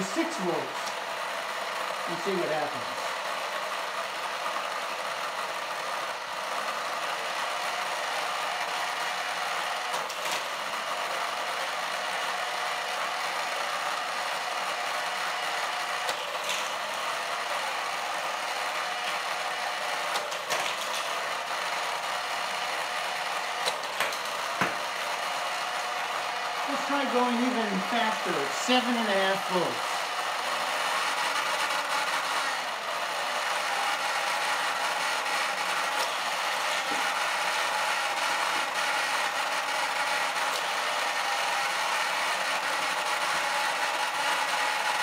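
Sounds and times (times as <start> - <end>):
small electric motor whirring: 0.0 - 45.0
toy cars clicking on plastic track: 9.9 - 10.6, 14.6 - 17.3, 20.0 - 21.4, 22.7 - 24.7, 28.0 - 45.0.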